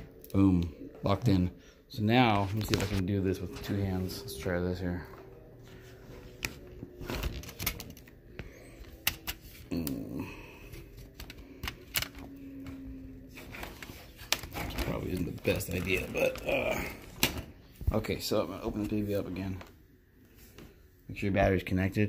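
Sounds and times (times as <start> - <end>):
laptop parts clicking and knocking: 11.1 - 12.4.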